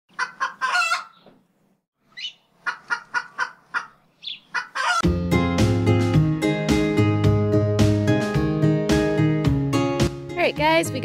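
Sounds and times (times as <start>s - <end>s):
chicken calling: 0.1s - 1.4s, 2.1s - 5.1s
chicken clucking: 0.1s - 1.4s, 2.2s - 5.0s
music: 5.0s - 11.0s.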